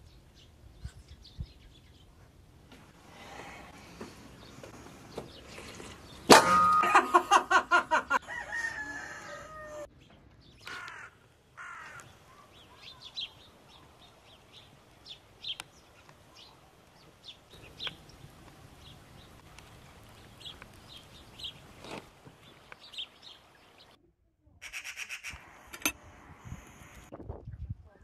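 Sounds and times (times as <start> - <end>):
small birds chirping: 0.0 - 2.5, 3.1 - 6.3, 9.9 - 24.0
rooster crowing: 8.1 - 9.9.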